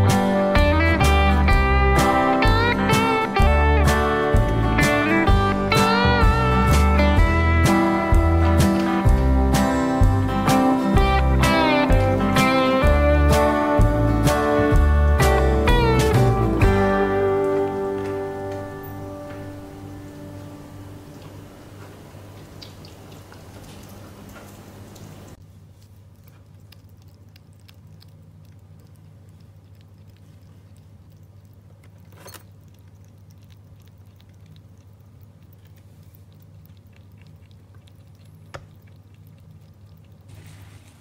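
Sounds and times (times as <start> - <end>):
soft music: 0.0 - 21.5
low steady hum: 0.0 - 41.0
hedgehog crunching dry food: 25.4 - 41.0.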